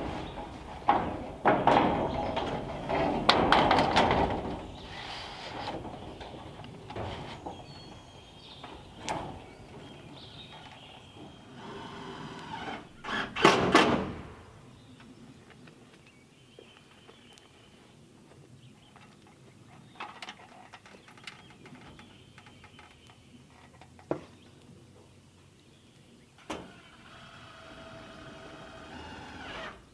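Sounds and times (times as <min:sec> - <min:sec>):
loud metal clatter: 0:00.0 - 0:04.8
sheet metal knocks and clanks: 0:00.0 - 0:04.8.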